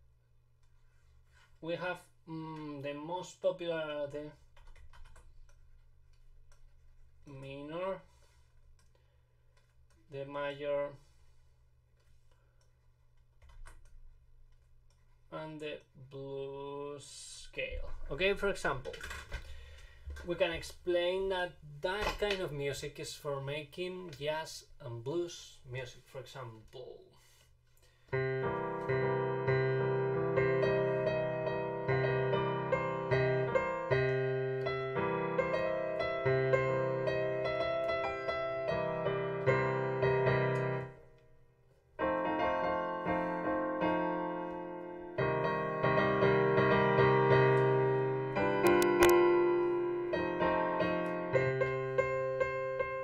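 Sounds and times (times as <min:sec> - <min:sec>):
piano playing blues scales: 0:28.1 - 0:41.1, 0:42.0 - 0:53.0.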